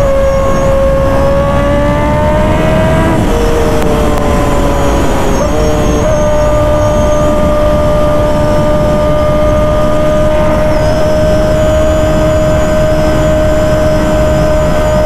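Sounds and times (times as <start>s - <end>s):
motorcycle engine at steady revs: 0.0s - 15.0s
wind rush: 0.0s - 15.0s.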